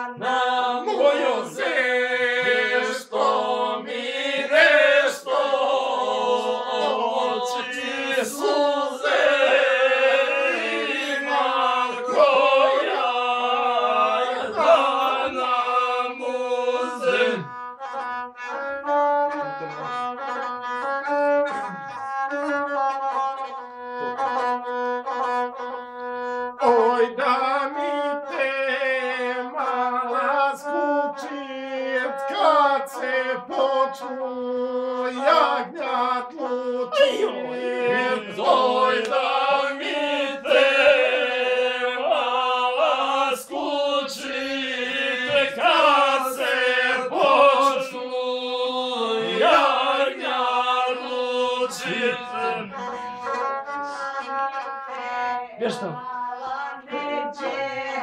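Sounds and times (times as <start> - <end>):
bowed folk fiddle tune: 0.0 - 58.0.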